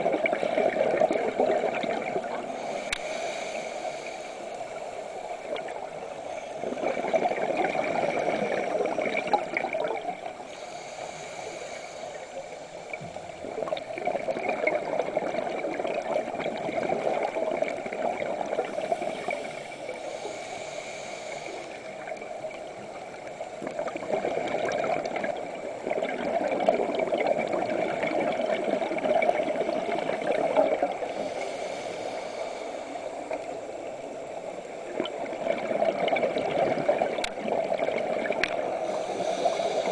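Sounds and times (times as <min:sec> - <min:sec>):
air bubbles gurgling underwater: 0:00.0 - 0:03.0, 0:06.6 - 0:10.4, 0:12.9 - 0:19.7, 0:22.0 - 0:31.3, 0:33.3 - 0:39.9.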